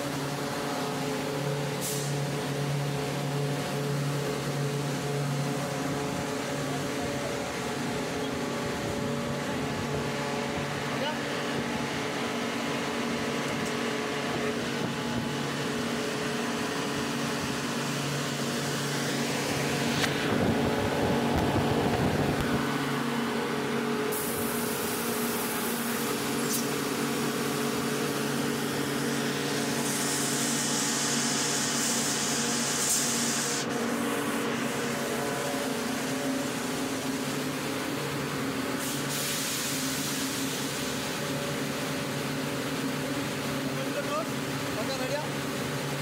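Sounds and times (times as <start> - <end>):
high air hisses: 0.0 - 12.2, 23.7 - 42.2
air compressor droning: 0.0 - 46.0.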